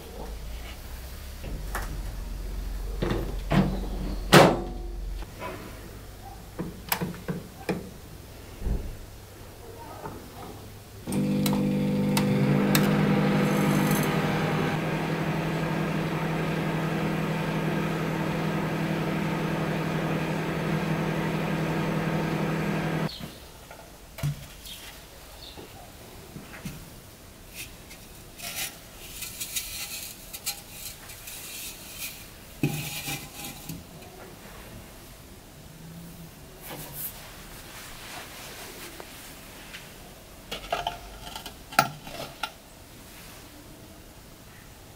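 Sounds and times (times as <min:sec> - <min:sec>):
microwave oven humming: 0:11.1 - 0:23.1.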